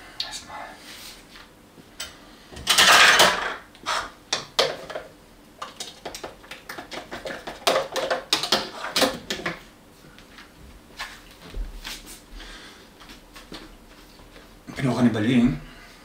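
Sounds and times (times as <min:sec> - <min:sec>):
dishes and utensils knocking: 0:02.6 - 0:03.6, 0:04.3 - 0:09.6
kitchen items clattering: 0:02.6 - 0:09.6.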